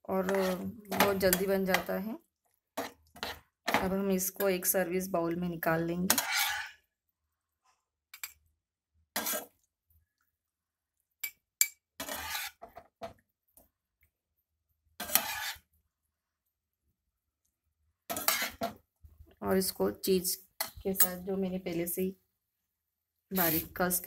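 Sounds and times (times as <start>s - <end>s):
spatula scraping frying pan: 0.0s - 1.9s, 2.7s - 4.4s, 6.0s - 7.0s, 9.1s - 9.7s, 11.9s - 13.3s, 14.8s - 15.9s, 18.0s - 18.9s.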